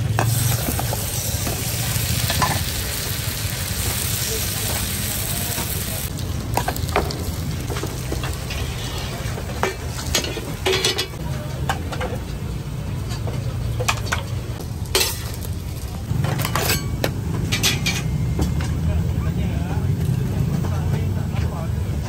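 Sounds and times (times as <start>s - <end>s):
batter sizzling in pans: 0.0s - 10.8s
metal utensil scraping pans: 7.7s - 12.2s, 16.2s - 18.6s.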